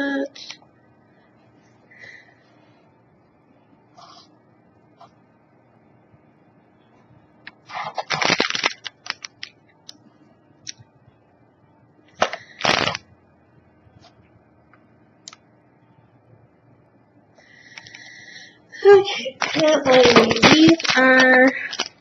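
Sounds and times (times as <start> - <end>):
plastic packaging crinkling: 7.7 - 9.6, 12.2 - 13.0, 19.1 - 22.0.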